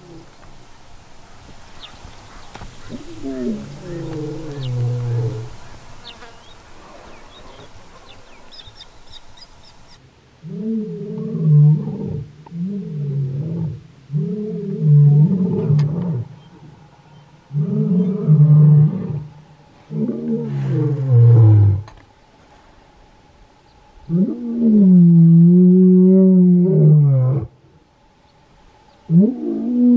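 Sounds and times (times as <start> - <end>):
lion roaring: 2.9 - 5.6, 10.4 - 16.4, 17.5 - 21.9, 24.1 - 27.6.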